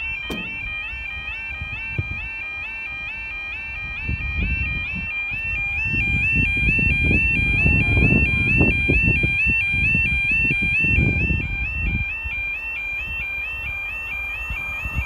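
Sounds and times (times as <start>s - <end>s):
level crossing two-tone alarm: 0.0s - 15.0s
low rumbling noise: 5.5s - 11.6s.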